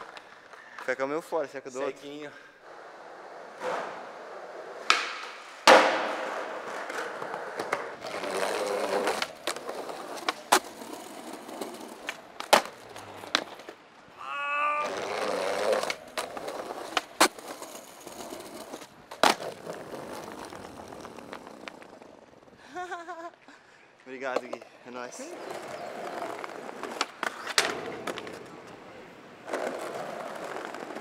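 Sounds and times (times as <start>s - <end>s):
skateboard wheels rolling on concrete: 0.0s - 31.0s
skateboard popping and landing: 3.4s - 13.8s, 14.8s - 22.5s, 25.4s - 31.0s.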